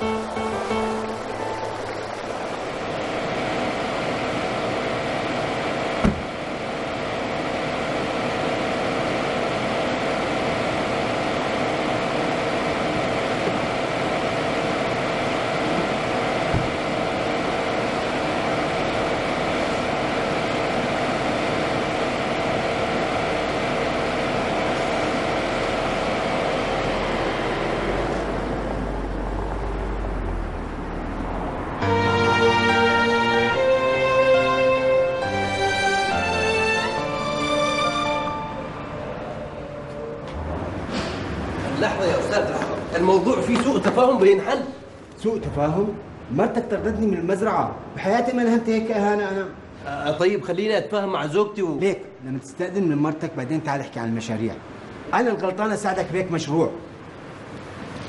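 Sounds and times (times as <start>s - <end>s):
car engine running: 0.0s - 32.0s.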